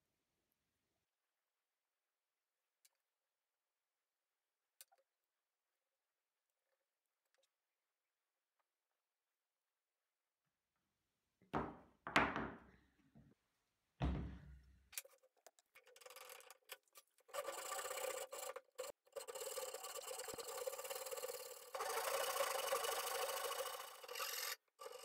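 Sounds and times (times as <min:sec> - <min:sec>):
knocks and thumps: 0:14.0 - 0:14.5
hand saw cutting wood: 0:17.2 - 0:25.0.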